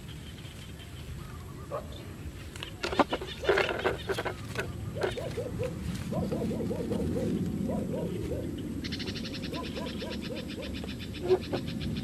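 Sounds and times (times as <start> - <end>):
knocks and rustling: 2.8 - 5.5
short arching bird calls: 8.8 - 12.0.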